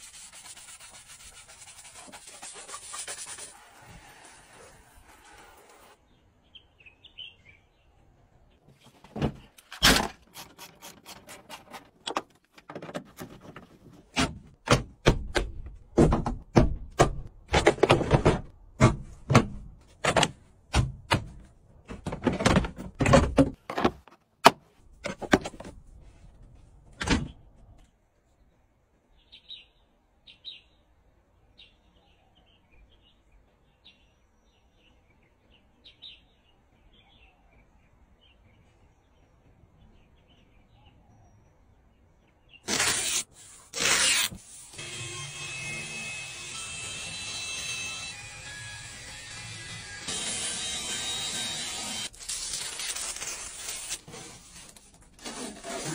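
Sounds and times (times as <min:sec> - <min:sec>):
sharp knocks and thunks: 0:12.8 - 0:25.8.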